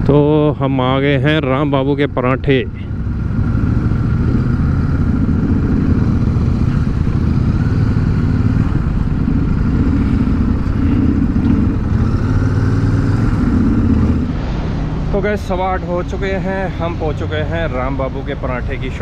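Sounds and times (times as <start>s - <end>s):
motorcycle engine running: 0.0s - 15.1s.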